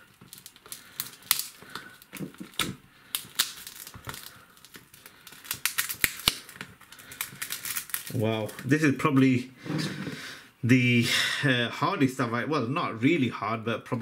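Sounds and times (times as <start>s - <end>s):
cracked glass snapping: 0.0s - 8.6s.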